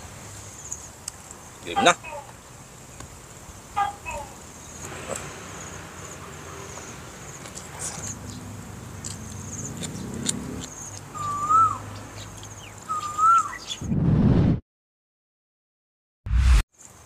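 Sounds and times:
bird whistle call: 11.2s - 11.8s, 12.9s - 13.8s
loud low rumble: 16.3s - 16.6s.

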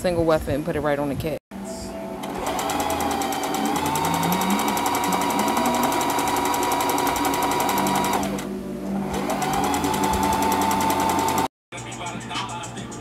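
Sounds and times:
sewing machine stitching: 2.2s - 11.5s.

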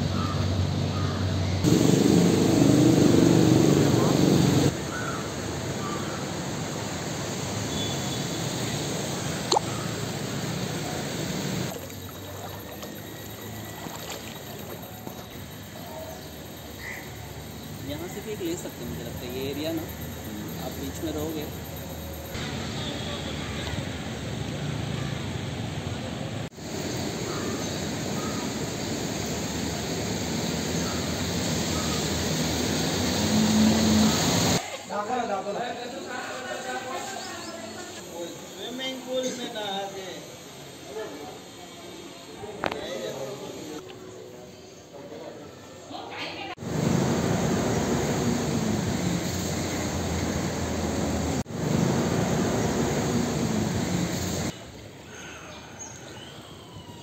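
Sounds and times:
outdoor roar: 0.0s - 5.9s, 30.5s - 34.6s, 46.6s - 54.6s
crows cawing faintly: 0.1s - 1.2s, 4.9s - 6.2s, 27.2s - 28.4s
water trickling and lapping: 11.5s - 15.5s.

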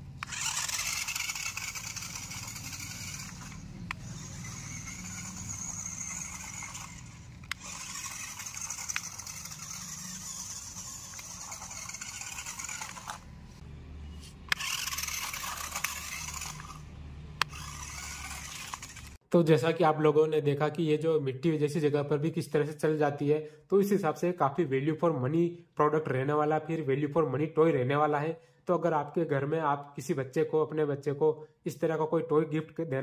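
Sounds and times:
toy car motor whining: 0.0s - 13.6s, 14.2s - 19.2s
sharp clicks: 0.2s - 13.2s, 17.4s - 19.2s.

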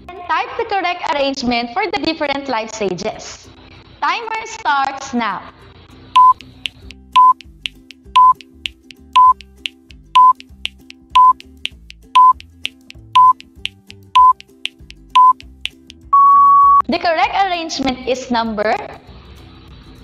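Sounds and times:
quiet background music: 0.0s - 20.0s
short high beeps: 6.2s - 6.4s, 7.2s - 7.4s, 8.2s - 8.4s, 9.2s - 9.4s, 10.2s - 10.4s, 11.2s - 11.4s, 12.2s - 12.4s, 13.1s - 13.4s, 14.2s - 14.4s, 15.2s - 15.4s, 16.1s - 16.9s.

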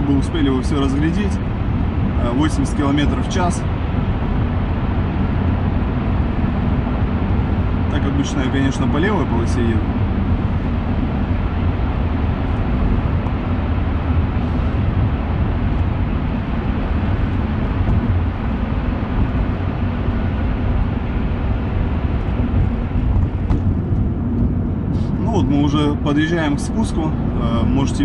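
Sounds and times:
car tyres and engine rumbling: 0.0s - 28.0s.

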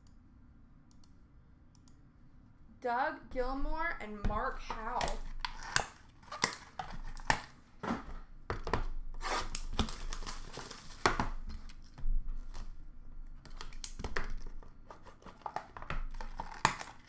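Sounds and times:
wrapper crinkling and tearing: 9.2s - 12.8s, 13.5s - 17.0s.

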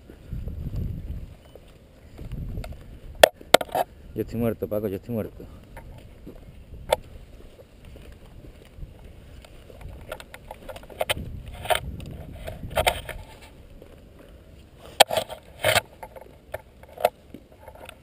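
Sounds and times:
footsteps crunching on dirt: 0.0s - 18.0s
rifle and gear rattling: 5.5s - 18.0s.

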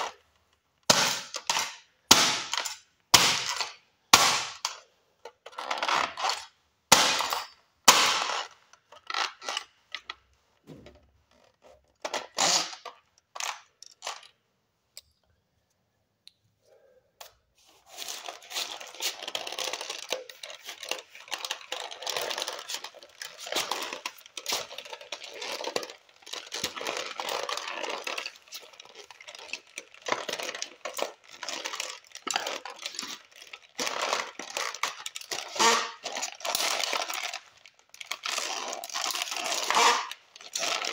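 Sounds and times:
toy car cracking underfoot: 0.8s - 10.2s, 10.9s - 14.4s, 17.9s - 40.9s
crackling and clattering: 18.0s - 40.9s.

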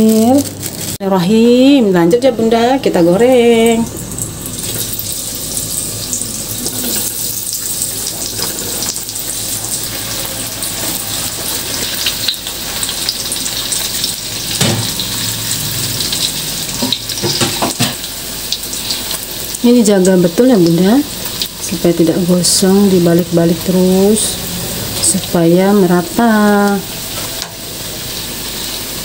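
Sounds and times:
food sizzling in hot oil: 0.0s - 29.0s.

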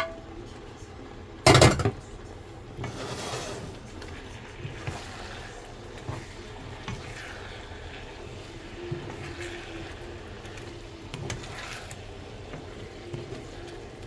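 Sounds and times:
food sizzling in a wok: 2.8s - 14.0s
spatula scraping a wok: 2.8s - 14.0s.

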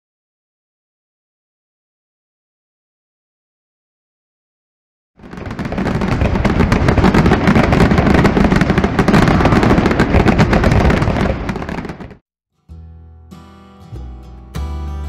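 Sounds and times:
fireworks crackling: 5.2s - 12.2s.

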